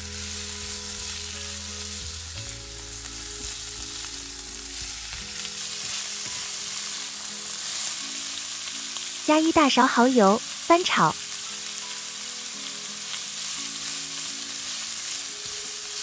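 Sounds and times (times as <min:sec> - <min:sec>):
food sizzling in hot oil: 0:00.0 - 0:16.0.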